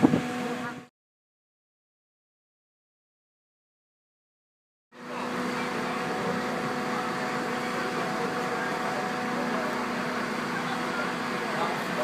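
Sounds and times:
fire engine humming: 0:00.0 - 0:00.9, 0:05.0 - 0:12.0.

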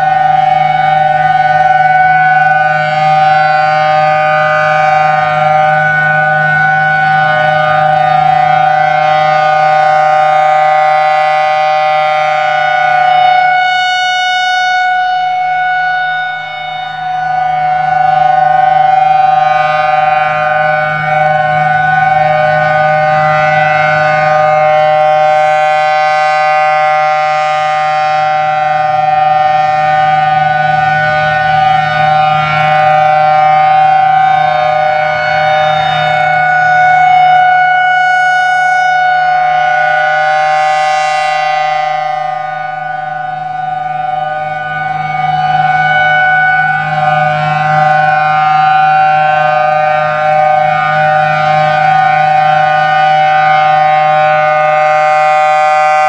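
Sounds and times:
warning siren two-note chord: 0:00.0 - 0:56.0.

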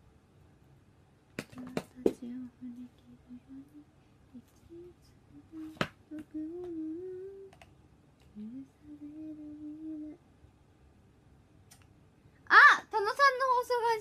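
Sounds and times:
woman humming softly: 0:01.6 - 0:07.6, 0:08.3 - 0:10.2.

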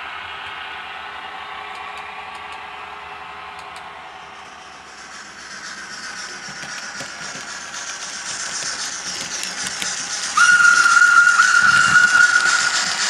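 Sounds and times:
steam hiss from speaker: 0:04.6 - 0:13.0
steam whistle: 0:10.4 - 0:13.0.

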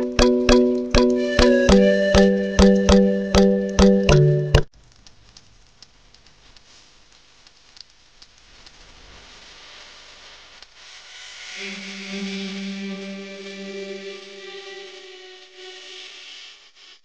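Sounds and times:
music: 0:00.0 - 0:04.7, 0:11.2 - 0:16.7
aquarium gravel clicks: 0:04.7 - 0:08.9
soft rising hiss: 0:05.0 - 0:17.0.

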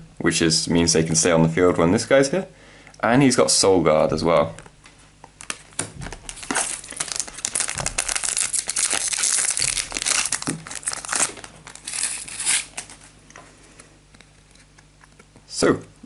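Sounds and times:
foil wrapper crinkling and tearing: 0:05.4 - 0:13.2.

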